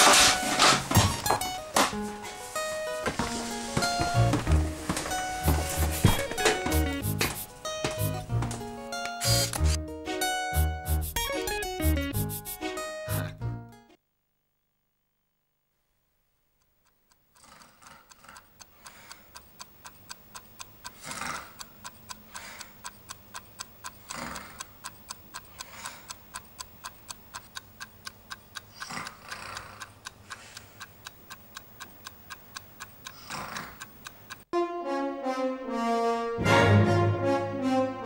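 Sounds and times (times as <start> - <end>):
clock ticking: 4.0 - 8.4, 16.6 - 34.5.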